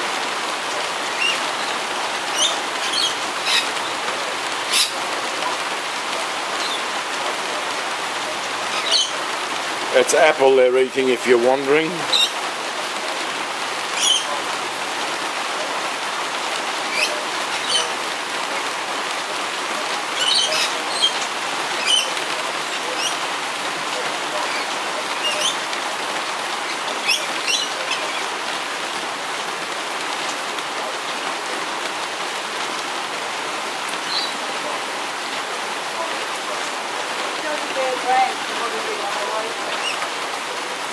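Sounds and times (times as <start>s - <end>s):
heavy rain falling: 0.0s - 40.9s
parrots chirping and screeching: 1.0s - 4.0s, 4.6s - 5.1s, 6.6s - 6.9s, 8.6s - 9.4s, 11.9s - 12.4s, 13.9s - 14.4s, 16.9s - 18.0s, 20.1s - 23.2s, 24.4s - 25.8s, 26.6s - 28.4s, 34.0s - 34.4s, 39.8s - 40.1s.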